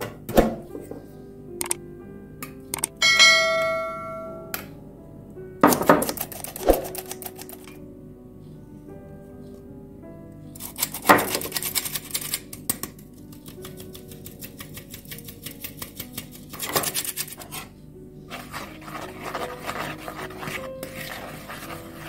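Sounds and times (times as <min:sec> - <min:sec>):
background music: 0:00.0 - 0:22.0
flour sifter clicking: 0:05.8 - 0:07.8
wire whisk scraping dry flour: 0:06.1 - 0:07.7, 0:10.6 - 0:17.7, 0:18.3 - 0:22.0.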